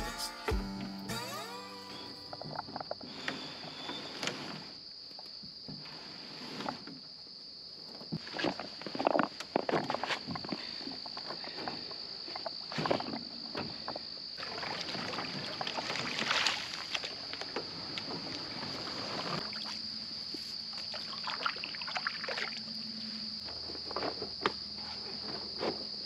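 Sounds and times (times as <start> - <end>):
high-pitched insect drone: 0.0 - 4.1
paddle strokes in water: 14.4 - 19.8.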